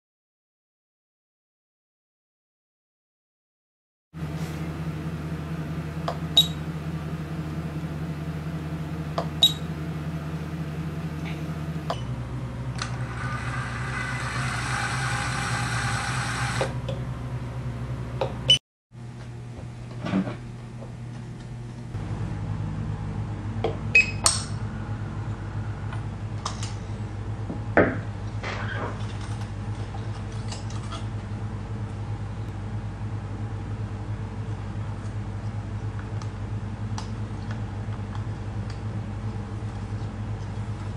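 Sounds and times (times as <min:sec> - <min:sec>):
feed motor whirring: 0:04.2 - 0:16.9
electric device humming: 0:04.2 - 0:23.6.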